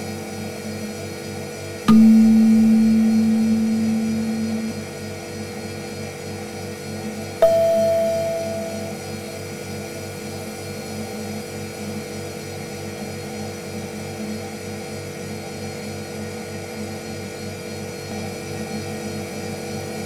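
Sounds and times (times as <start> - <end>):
bell-like ping: 1.9 - 4.9, 7.4 - 9.1.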